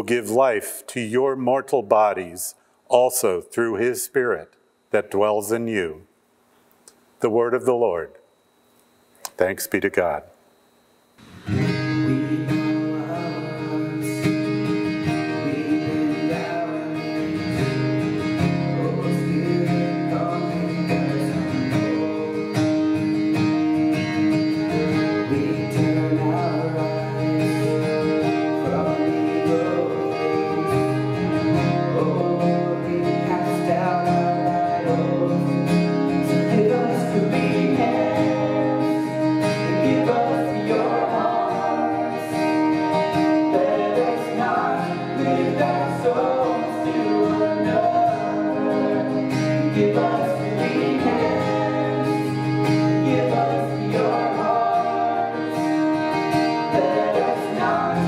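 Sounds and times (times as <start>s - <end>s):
keyboard: 11.2s - 58.0s
strummed acoustic guitar: 11.2s - 58.0s
voices singing: 11.4s - 23.0s, 24.2s - 58.0s.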